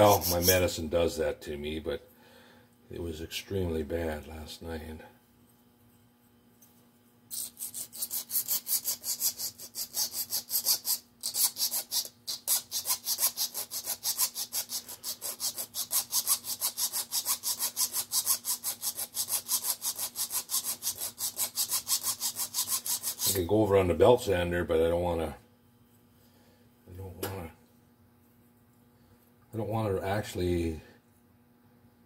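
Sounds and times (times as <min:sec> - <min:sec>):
hand file scraping metal: 0:00.0 - 0:00.7, 0:07.3 - 0:23.4.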